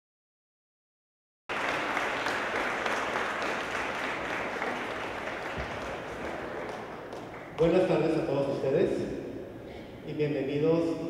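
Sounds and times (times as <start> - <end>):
audience applauding: 1.5 - 8.1.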